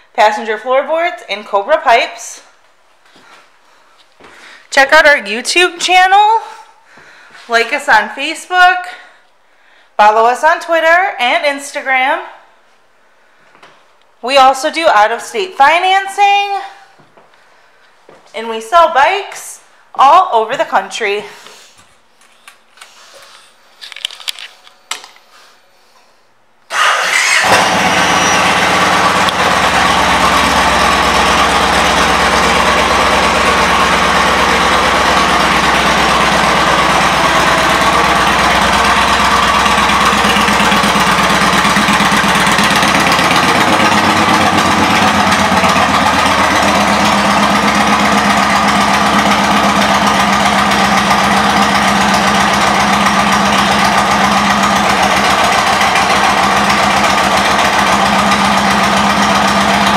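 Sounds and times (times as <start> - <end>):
motorcycle engine idling: 26.8 - 59.9.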